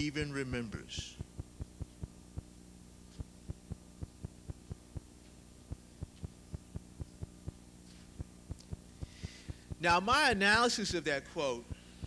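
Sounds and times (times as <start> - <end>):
electrical hum: 0.0 - 12.0
regular low thumps: 1.2 - 2.6, 3.2 - 10.6.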